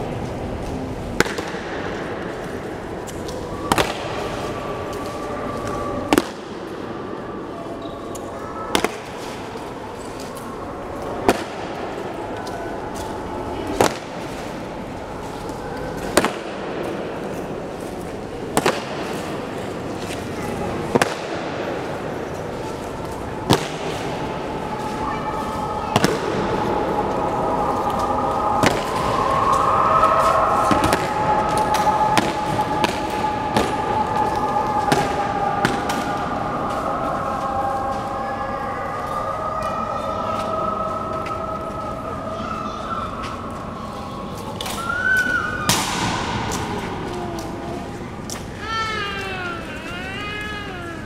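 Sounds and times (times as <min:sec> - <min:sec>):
steady background hum: 0:00.0 - 0:51.0
steady sustained tone: 0:21.8 - 0:44.3.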